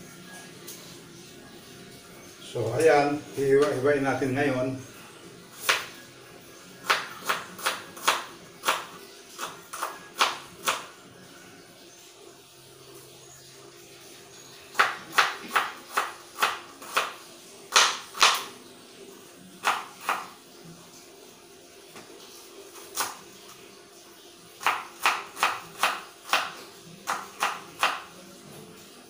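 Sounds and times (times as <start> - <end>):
knife chopping on cutting board: 6.8 - 10.9, 14.8 - 17.1, 17.7 - 18.5, 19.6 - 20.3, 24.6 - 28.1.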